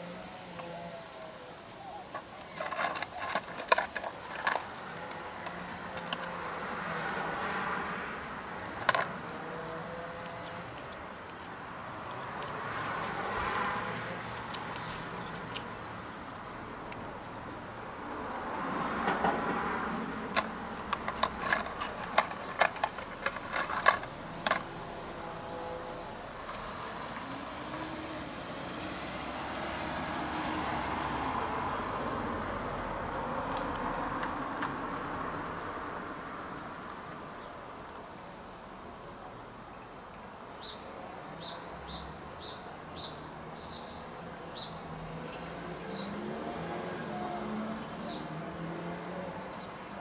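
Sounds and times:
squirrel gnawing shell: 0:01.9 - 0:07.0, 0:19.4 - 0:25.3.

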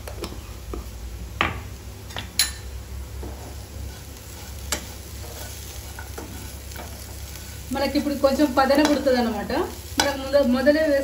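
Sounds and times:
potatoes sizzling in a pan: 0:02.6 - 0:11.0
spoon scraping a pan: 0:03.2 - 0:07.6
spoon clicking against a pan: 0:08.8 - 0:09.1.

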